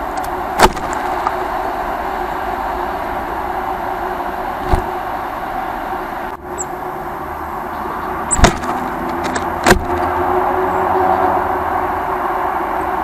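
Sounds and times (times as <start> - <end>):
city traffic hum: 0.0 - 13.0
high peeps: 7.8 - 8.8
sharp knocks: 8.3 - 10.1.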